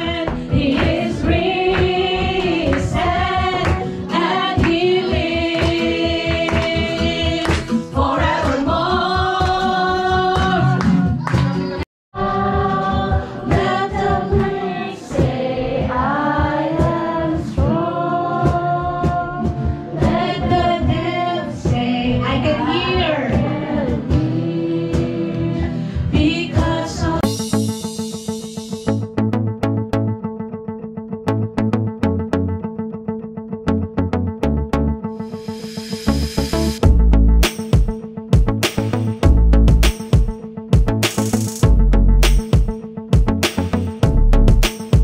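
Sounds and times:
voices singing worship song: 0.0s - 11.2s, 12.2s - 27.4s
steady beat: 26.6s - 29.2s, 35.4s - 45.0s.

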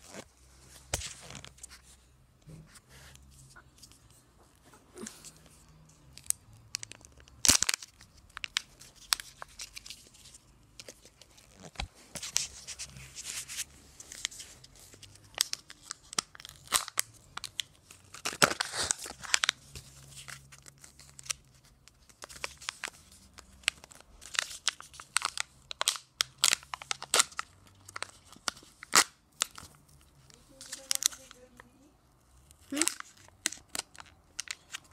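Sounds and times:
foil crinkling and tearing: 15.0s - 23.0s, 30.5s - 31.4s, 32.6s - 34.9s
plastic clicks and crackles: 32.6s - 34.9s.

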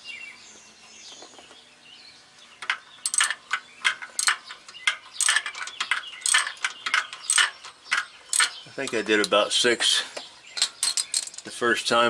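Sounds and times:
ratchet wrench clicking: 2.6s - 9.4s.

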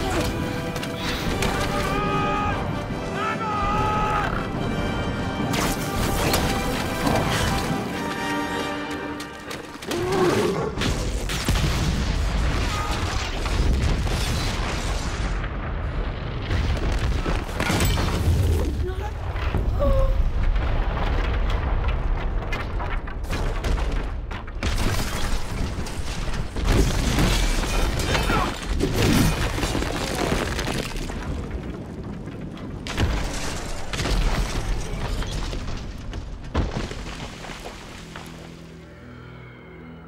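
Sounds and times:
film score music: 0.0s - 13.8s, 35.6s - 40.0s
explosion booms and rumbling: 10.8s - 37.0s
crashing debris: 10.8s - 38.3s.

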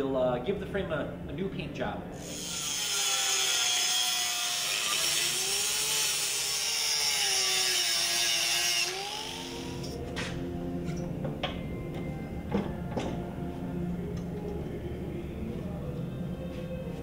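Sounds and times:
angle grinder grinding metal: 2.2s - 10.0s.

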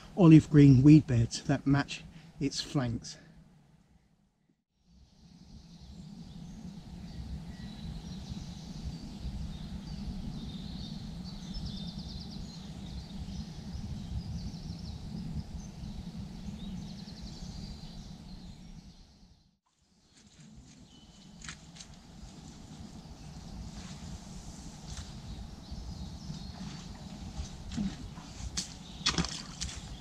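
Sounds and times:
steady low rumble: 5.1s - 18.4s, 20.4s - 30.0s
small birds calling: 25.0s - 30.0s.

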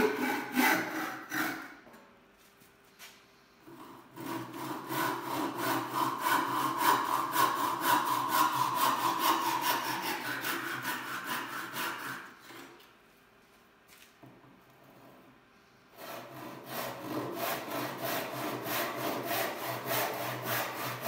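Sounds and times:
handsaw cutting through board: 0.0s - 1.8s, 3.8s - 12.6s, 16.0s - 21.0s.

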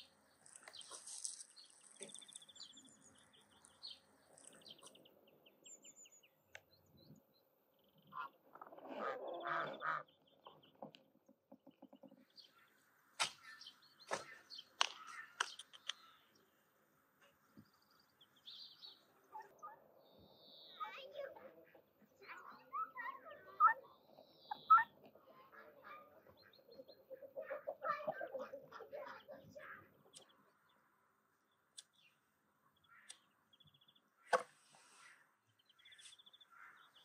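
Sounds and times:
small birds chirping: 0.0s - 37.0s
dry brushwood cracking: 0.4s - 2.4s.

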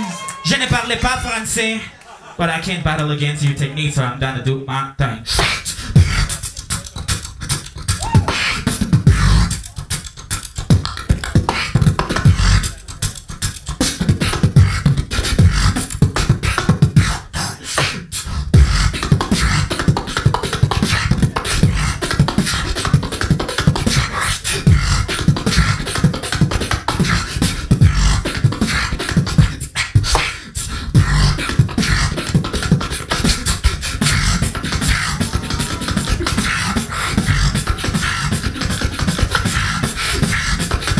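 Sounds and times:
person beatboxing into a microphone: 2.6s - 40.9s
deep bass: 5.3s - 17.2s, 18.4s - 23.0s, 23.6s - 29.6s, 30.9s - 40.8s.

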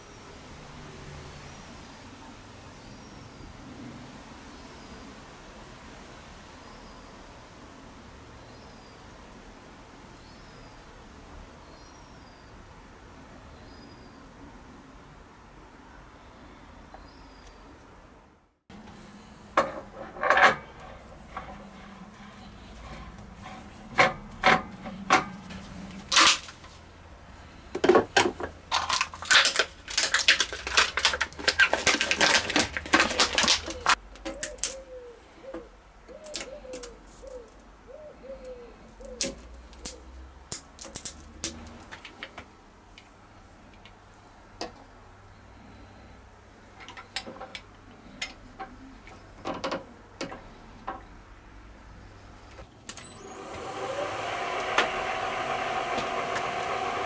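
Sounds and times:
hard objects clattering: 27.8s - 34.7s
bird cooing: 33.7s - 39.3s.

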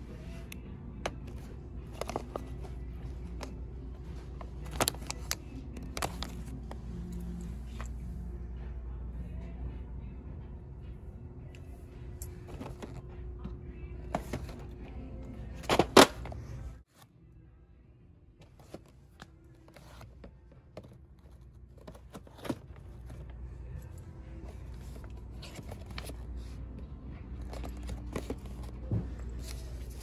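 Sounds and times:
faint music: 0.0s - 30.0s
low steady hum: 0.0s - 30.0s
packaging clicks and taps: 1.0s - 3.6s, 4.4s - 6.6s, 27.4s - 28.8s.

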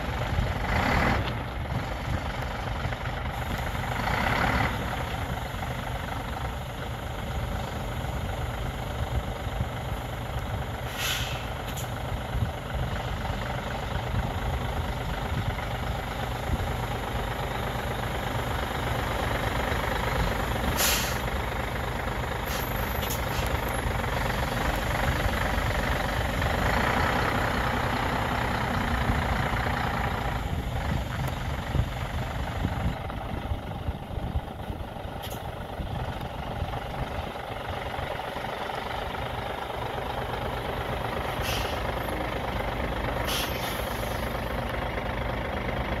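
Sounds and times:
truck diesel engine running: 0.0s - 46.0s
compressed air hisses: 10.9s - 11.9s, 20.8s - 21.3s.

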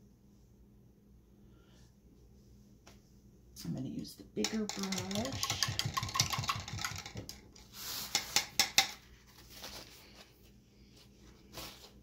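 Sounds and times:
paintbrushes clicking and clattering: 4.4s - 9.0s
paper towel rustling: 9.2s - 12.0s.

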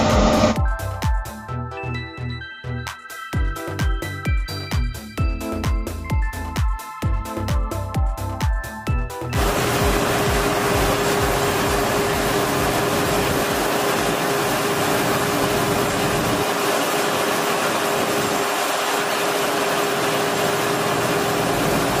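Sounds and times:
harvester machinery whine: 0.0s - 0.6s, 9.4s - 22.0s
grain pouring into trailer: 9.4s - 22.0s.

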